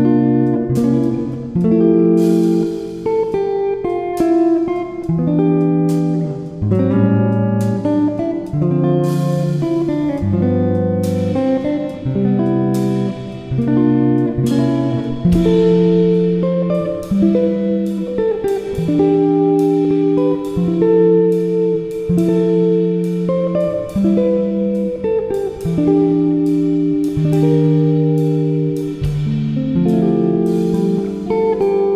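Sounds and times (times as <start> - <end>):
plucked string music: 0.0 - 31.9.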